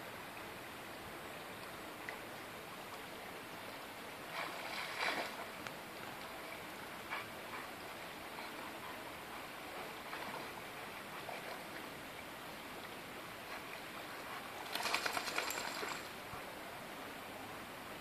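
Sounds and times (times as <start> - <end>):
stony river flowing: 0.0 - 18.0
dog splashing in water: 14.6 - 16.2.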